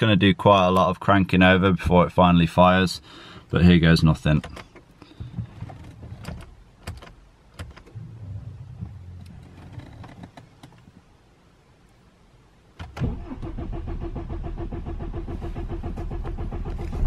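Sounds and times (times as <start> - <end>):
diesel engine cranking on starter: 12.9 - 17.0.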